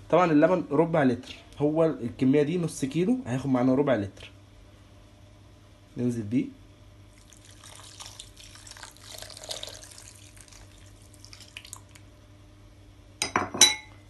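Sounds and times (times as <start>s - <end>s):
milk trickling and splashing: 7.1s - 12.1s.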